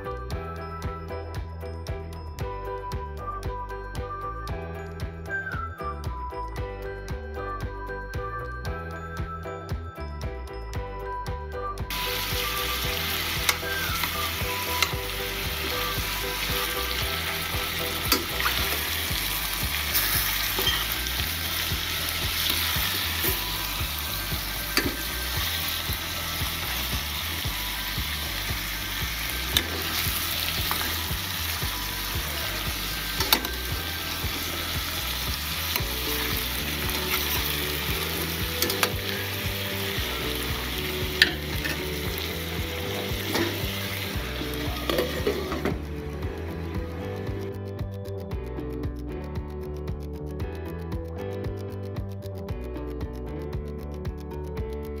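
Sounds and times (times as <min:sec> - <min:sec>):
meat sizzling in a pot: 0:11.9 - 0:47.6.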